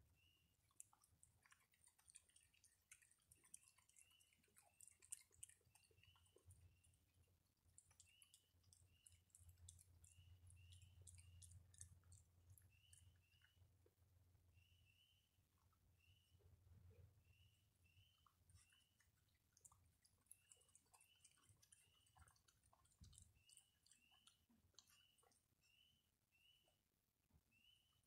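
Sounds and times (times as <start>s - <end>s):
raccoon chewing dry food: 0.2s - 13.9s, 15.6s - 25.9s
faint high chirp: 10.0s - 11.9s, 12.5s - 13.7s, 14.5s - 15.4s, 16.0s - 19.1s, 23.1s - 26.8s, 27.5s - 28.0s.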